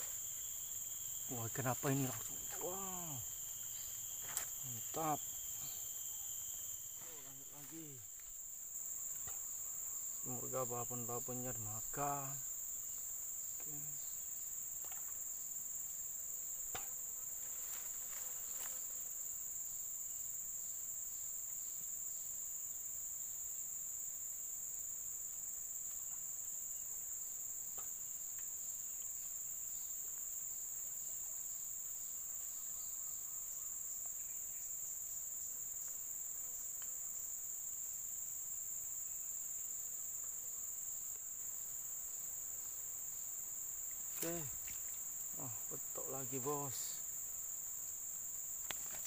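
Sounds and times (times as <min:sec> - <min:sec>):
insects shrilling: 0:00.0 - 0:19.4, 0:38.1 - 0:49.0.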